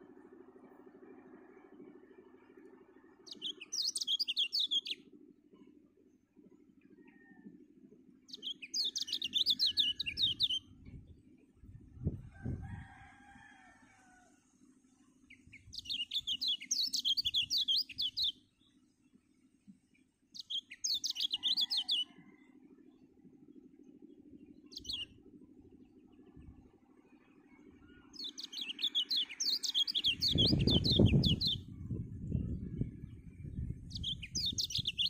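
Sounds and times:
bird twittering: 0:03.3 - 0:05.0.

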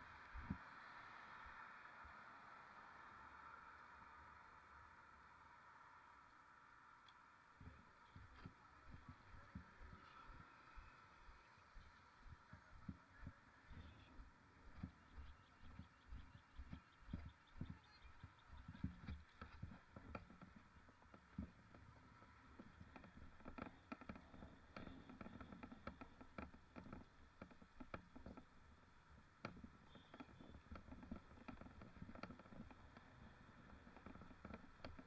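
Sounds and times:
bike rattles and clicks: 0:07.6 - 0:35.0.

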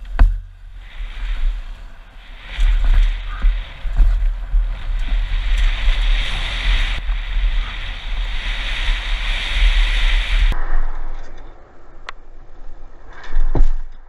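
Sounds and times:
tyres hissing on loose ground: 0:00.0 - 0:10.6
wind buffeting microphone: 0:00.0 - 0:13.7.

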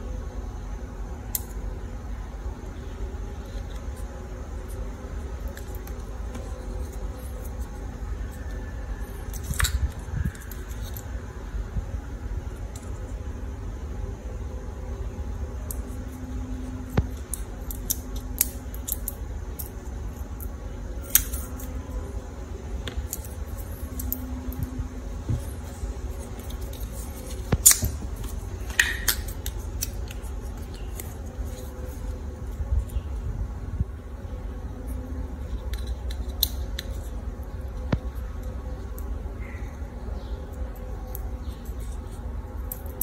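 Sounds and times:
scissors snipping plastic straws: 0:16.9 - 0:19.8.

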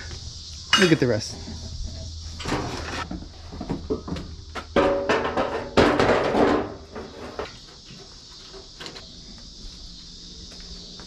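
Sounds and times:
metal fender clattering scrape: 0:00.7 - 0:04.1, 0:04.8 - 0:07.6.

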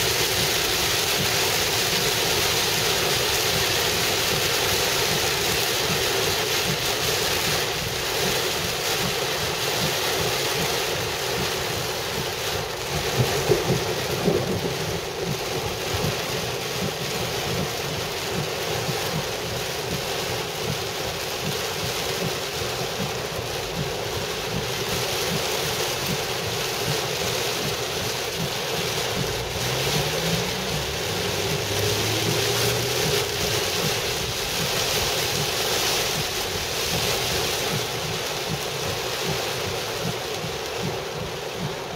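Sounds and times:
heavy rain on car roof: 0:00.0 - 0:41.9
car engine accelerating: 0:28.4 - 0:40.2.

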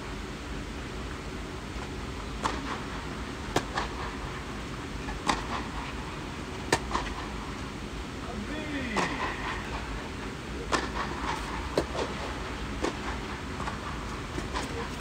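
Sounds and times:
racket striking tennis ball: 0:05.2 - 0:05.6.

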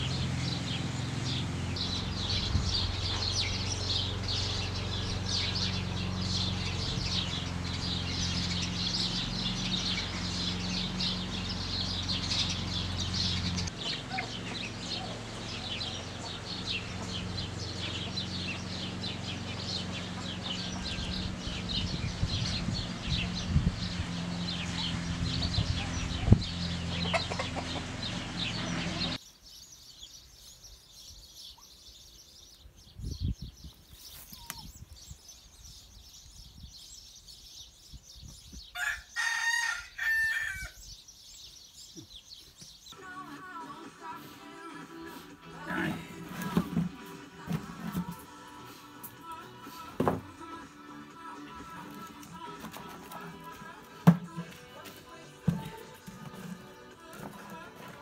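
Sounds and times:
small birds chirping: 0:00.0 - 0:58.0
hens clucking: 0:08.4 - 0:21.4, 0:26.8 - 0:29.2, 0:43.0 - 0:58.0.

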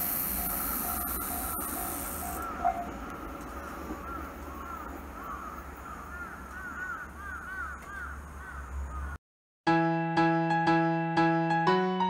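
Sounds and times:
crows cawing: 0:00.8 - 0:02.9, 0:04.0 - 0:09.2
piano music: 0:09.7 - 0:12.0.

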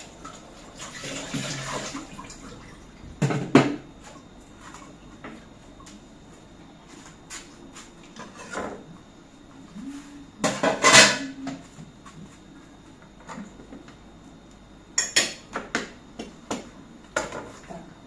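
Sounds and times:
dishes and utensils clattering: 0:10.5 - 0:11.5.

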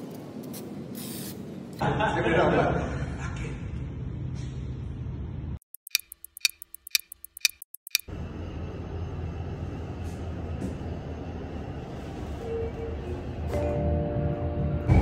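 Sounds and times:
clock ticking: 0:05.6 - 0:08.1.

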